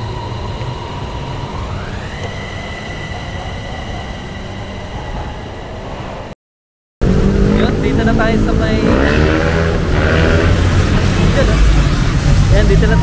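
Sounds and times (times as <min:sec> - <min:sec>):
electric train motors whining: 0:00.0 - 0:06.3
low rumble of running train: 0:00.0 - 0:06.3, 0:07.0 - 0:13.0.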